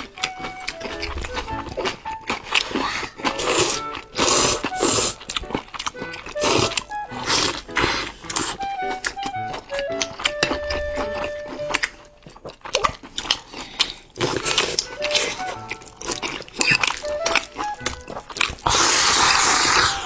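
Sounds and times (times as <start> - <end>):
wet chewing and lip-smacking: 0.0 - 20.0
slurping noodles: 0.3 - 9.3, 13.0 - 20.0.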